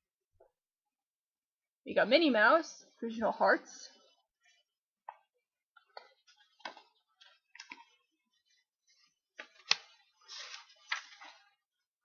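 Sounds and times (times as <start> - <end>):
paper rustle: 9.0 - 11.7.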